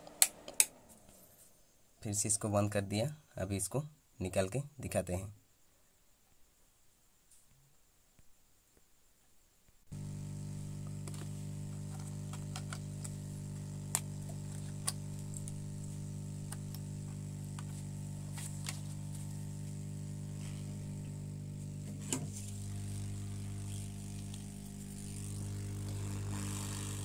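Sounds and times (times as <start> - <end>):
hot air blower hissing: 9.9 - 27.0.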